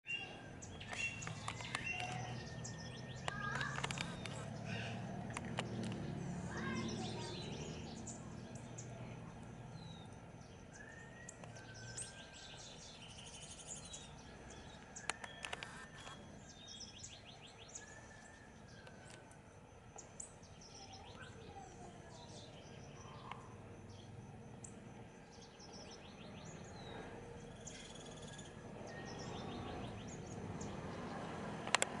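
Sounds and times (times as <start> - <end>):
birds calling: 0.0 - 19.2, 19.9 - 32.0
sharp clicks: 0.8 - 6.2, 14.7 - 16.2, 31.6 - 32.0.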